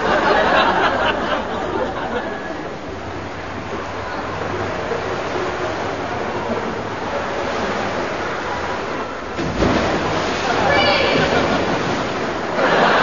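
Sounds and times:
water rushing: 1.3s - 13.0s
water splashing: 3.4s - 13.0s
faint voices: 10.3s - 11.8s.

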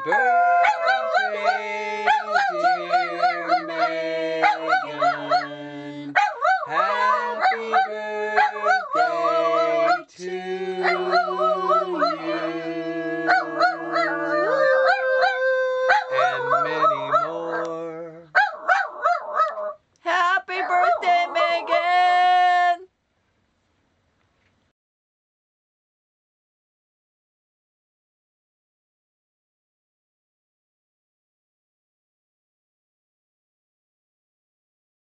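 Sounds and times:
dog howling: 0.0s - 19.7s.

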